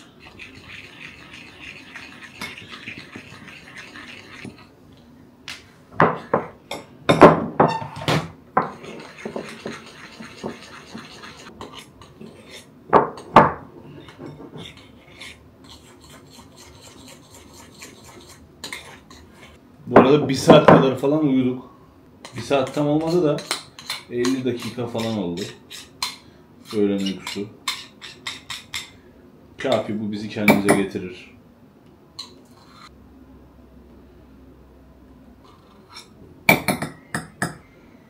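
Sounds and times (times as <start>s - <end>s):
spoon scraping a bowl: 0.0s - 4.7s, 8.6s - 12.7s, 13.9s - 19.6s, 22.2s - 28.9s, 32.2s - 32.9s, 35.4s - 36.2s.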